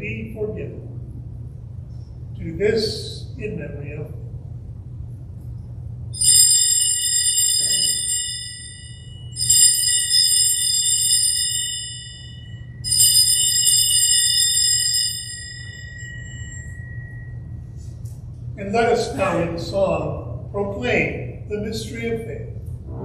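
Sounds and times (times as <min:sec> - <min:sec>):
altar bells ringing: 0:06.2 - 0:17.6.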